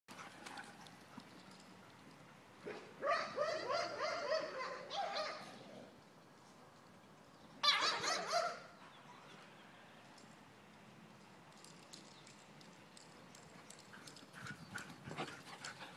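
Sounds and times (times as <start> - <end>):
dogs making high wavering calls: 7.6 - 8.7.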